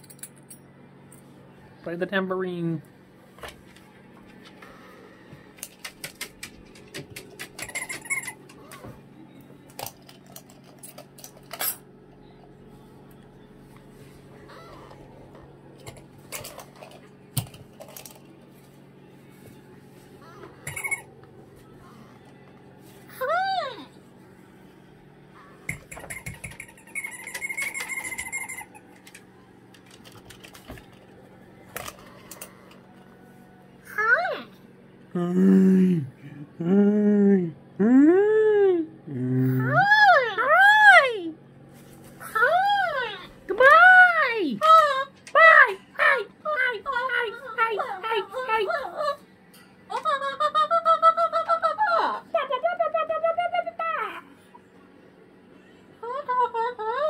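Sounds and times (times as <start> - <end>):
cockatoo rattling clicks on toy: 26.0 - 29.2.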